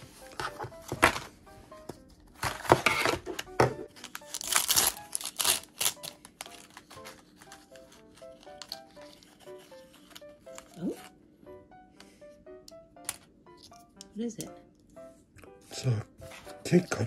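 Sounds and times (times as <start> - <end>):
plastic packaging crinkling and tearing: 3.9 - 10.8.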